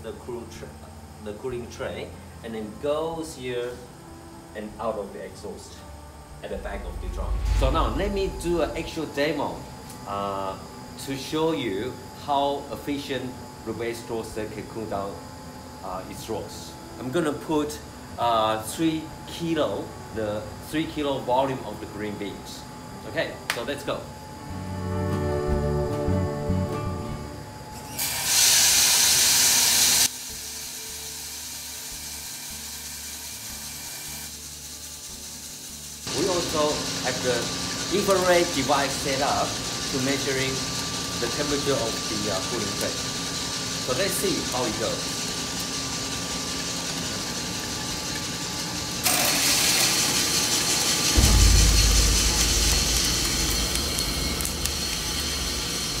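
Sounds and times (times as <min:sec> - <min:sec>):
roaster drum and fan running: 0:00.0 - 0:56.0
deep rumble: 0:06.3 - 0:10.0, 0:51.2 - 0:56.0
coffee beans rushing into drum: 0:36.0 - 0:45.4, 0:49.0 - 0:56.0.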